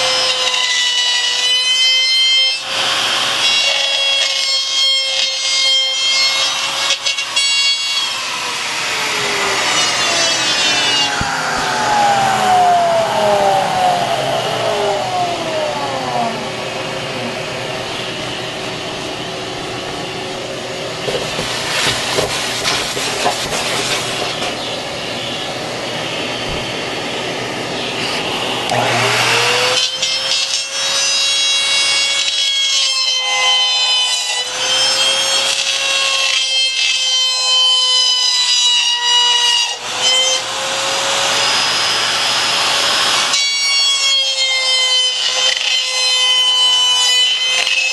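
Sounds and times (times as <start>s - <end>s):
router high whine: 0.0s - 47.9s
shop vacuum hissing: 6.0s - 29.9s.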